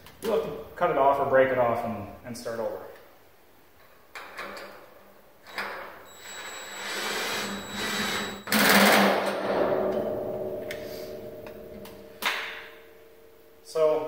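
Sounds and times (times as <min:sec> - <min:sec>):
cordless drill running: 0:06.1 - 0:08.5.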